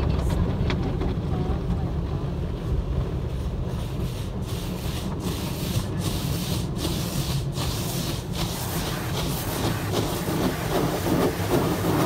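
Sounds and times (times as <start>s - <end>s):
steady low rumble: 0.0s - 12.0s
brushes rubbing over car: 3.3s - 12.0s
water and foam spraying: 3.3s - 12.0s.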